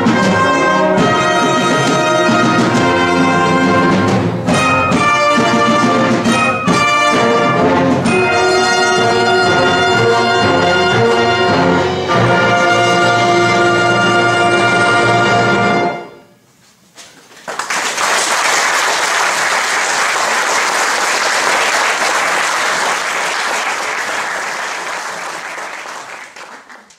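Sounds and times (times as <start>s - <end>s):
audience applause: 17.2s - 26.9s.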